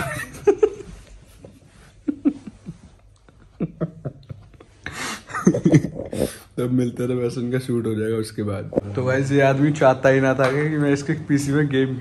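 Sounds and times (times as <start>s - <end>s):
man laughing softly: 0.0s - 6.4s.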